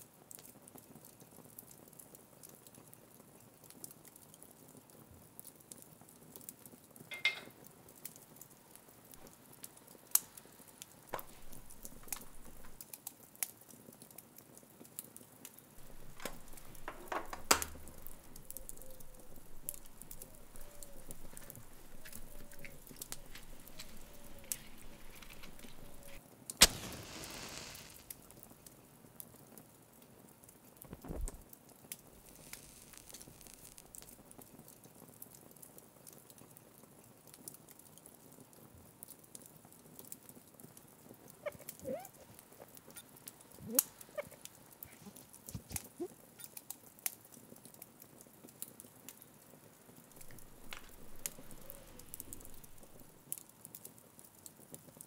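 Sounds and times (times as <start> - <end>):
flaring hiss: 10.0 - 12.8, 15.8 - 28.7, 30.9 - 34.3, 50.1 - 53.2
match strike: 10.1 - 12.8, 15.8 - 28.6, 30.9 - 34.2, 50.1 - 53.2
faint small clicks: 11.1 - 13.5, 15.8 - 28.2, 50.1 - 53.8.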